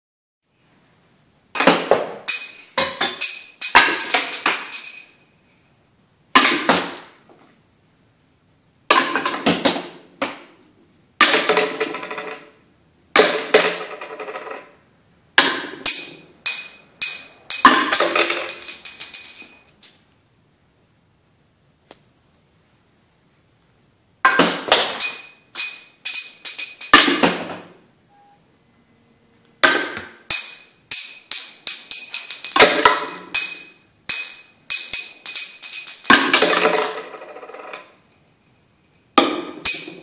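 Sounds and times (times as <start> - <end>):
plastic rings clattering on bottles: 29.6 - 38.0.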